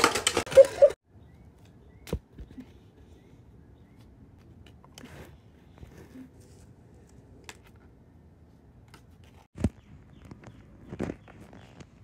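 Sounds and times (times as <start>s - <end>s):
toy car clattering on concrete: 0.0s - 0.9s.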